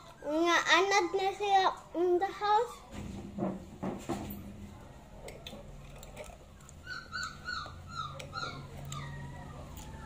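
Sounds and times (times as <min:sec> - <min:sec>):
puppies whimpering: 0:00.0 - 0:01.8, 0:06.4 - 0:10.0.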